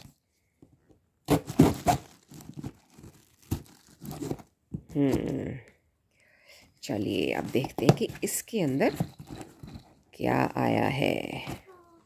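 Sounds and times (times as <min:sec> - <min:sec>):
packing tape tearing off box: 0:01.3 - 0:04.5.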